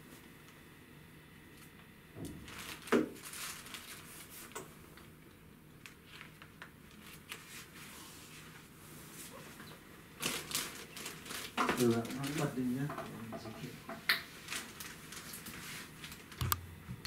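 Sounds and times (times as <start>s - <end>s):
packaging rustle and bump: 2.2s - 4.6s, 10.2s - 12.8s, 14.4s - 16.4s.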